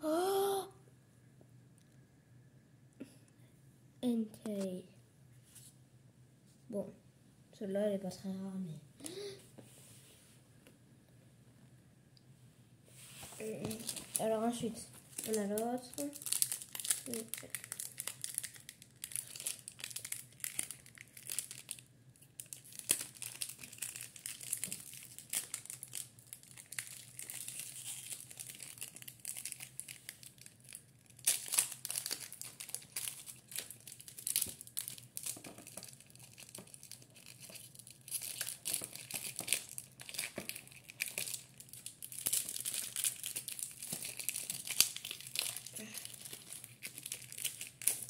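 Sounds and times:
foil wrapper crinkling and tearing: 13.4s - 14.5s, 15.1s - 48.0s.

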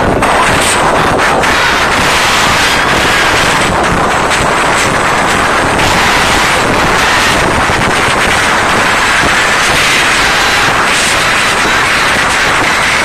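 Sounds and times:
crowd screaming distorted: 0.0s - 13.0s.

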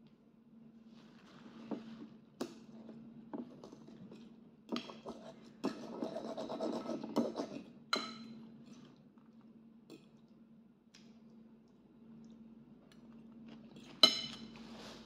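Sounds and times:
fork scraping ceramic bowl: 3.6s - 8.3s.

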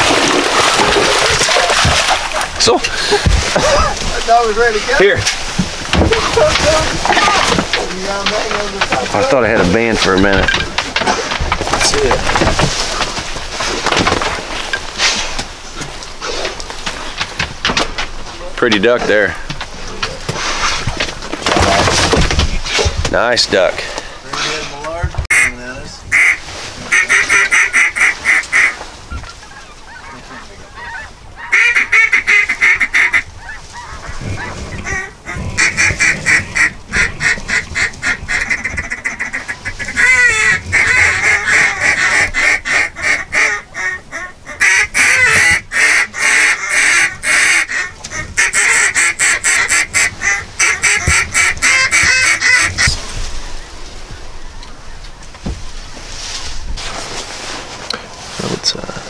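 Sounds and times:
geese honking: 25.3s - 53.0s.

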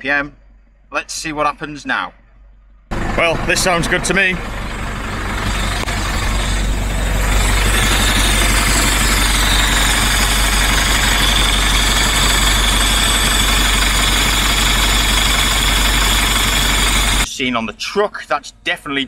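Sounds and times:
diesel truck engine idling: 2.4s - 17.3s.

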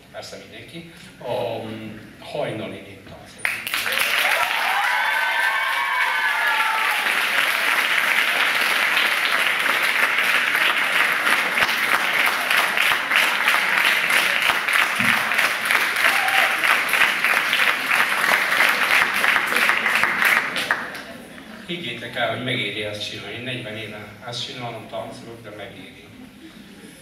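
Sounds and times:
audience applauding: 3.4s - 21.4s.

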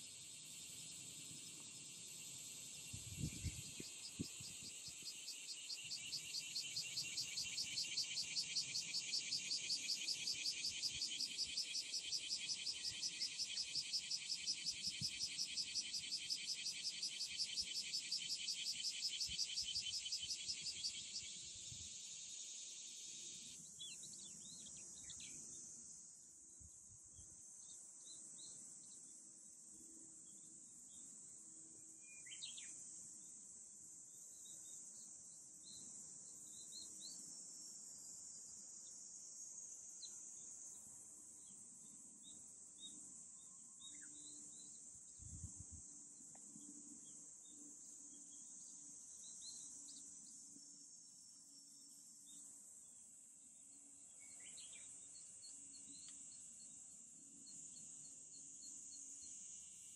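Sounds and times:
pulsing insect call: 0.0s - 23.8s
cicada drone: 0.0s - 26.2s, 27.6s - 59.9s
small birds chirping: 53.7s - 56.8s.

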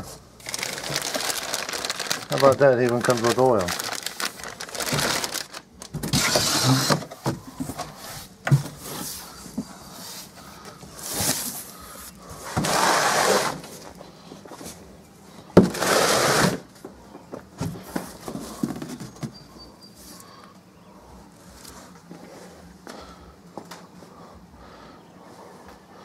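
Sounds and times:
cardboard box flaps scraping: 12.4s - 13.6s.

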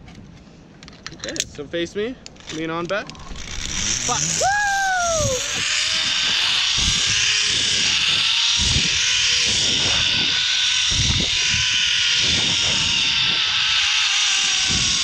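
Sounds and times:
wind buffeting microphone: 3.2s - 13.8s, 14.6s - 15.0s
zip line pulleys whining: 3.2s - 15.0s.

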